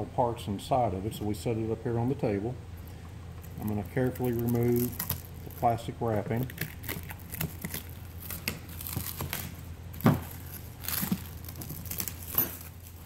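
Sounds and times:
plastic wrapping crinkling: 3.4 - 13.0.

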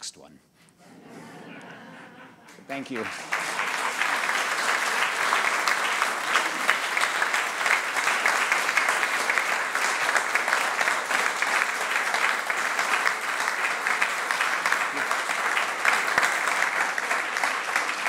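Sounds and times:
audience applauding: 1.7 - 18.0.

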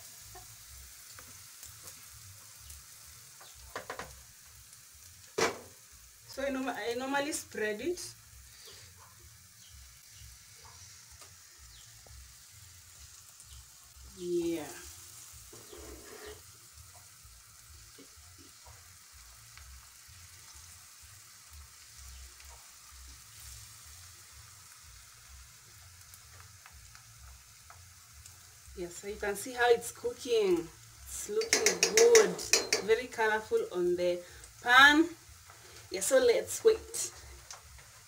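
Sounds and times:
batter sizzling in a pan: 0.0 - 38.0
spoon scraping a pan: 15.5 - 16.5, 31.2 - 33.0.

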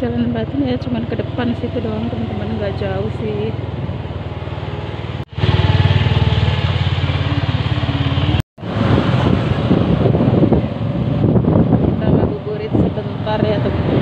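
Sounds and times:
motor scooter engine running: 0.0 - 8.4
wind noise on microphone: 8.6 - 14.0.

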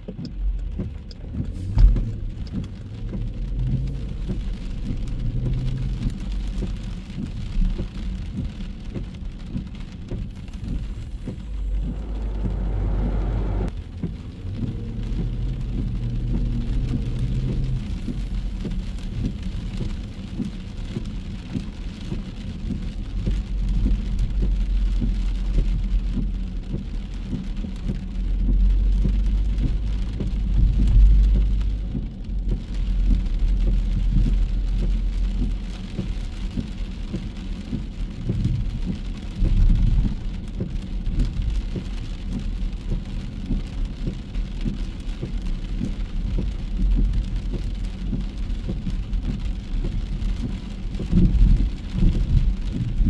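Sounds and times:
cars passing on wet pavement: 0.0 - 53.0
low rumble: 0.0 - 53.0
rain on a street: 0.0 - 53.0.

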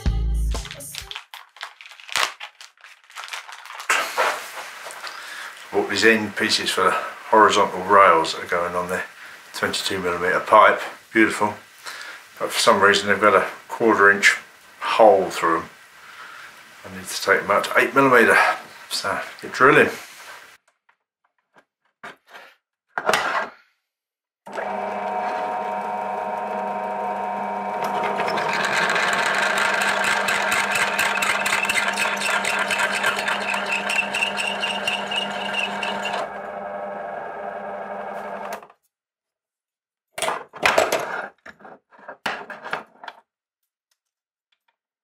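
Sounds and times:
drill bit grinding through metal: 24.5 - 36.6
drill press motor running: 24.5 - 38.6.

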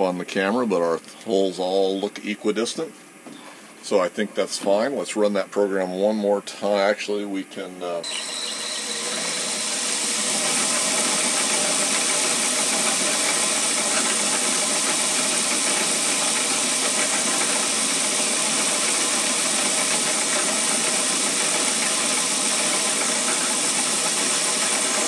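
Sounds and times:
drill bit drilling metal: 8.0 - 25.0
milling machine spindle running: 8.0 - 25.0.

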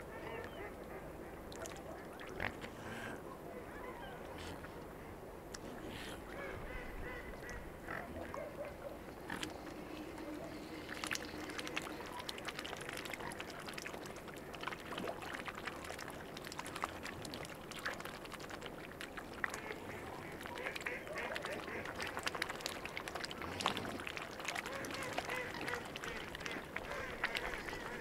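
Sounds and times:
swan calls: 24.4 - 28.0.

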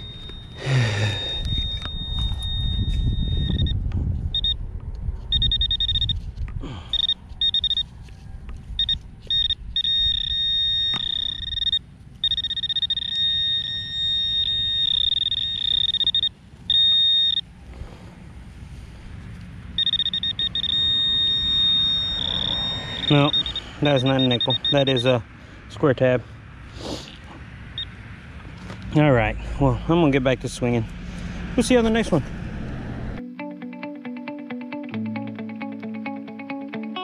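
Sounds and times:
metal detector alert tone: 0.0 - 3.8, 4.4 - 4.6, 5.3 - 6.2, 6.9 - 7.9, 8.8 - 17.4, 19.8 - 25.2.

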